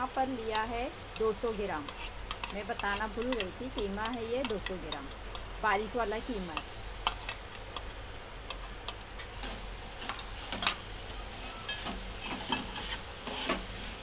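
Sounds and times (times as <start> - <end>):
metal spoon scraping steel pot: 1.8 - 3.9.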